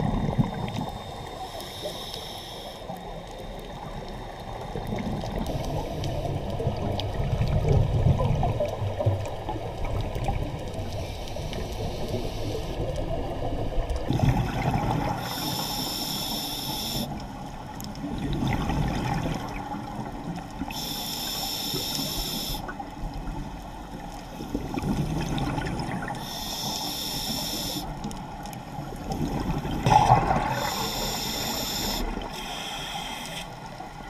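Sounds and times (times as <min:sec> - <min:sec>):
exhaled bubbles gushing underwater: 0:00.0 - 0:01.6, 0:02.9 - 0:15.9, 0:16.9 - 0:21.0, 0:22.5 - 0:26.8, 0:27.9 - 0:32.4
scuba regulator hissing: 0:15.3 - 0:17.1, 0:30.5 - 0:33.5.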